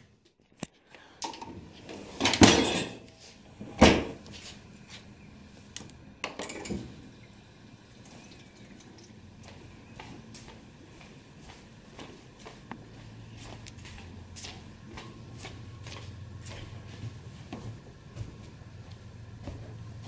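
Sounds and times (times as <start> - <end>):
dishes rattling in racks: 2.1 - 3.1, 6.2 - 6.9
dishwasher door shutting: 2.2 - 3.0, 3.6 - 4.2.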